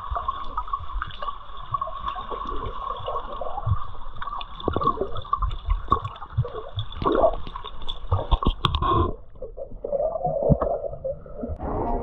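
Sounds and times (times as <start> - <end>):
water gurgling underwater: 0.0 - 12.0.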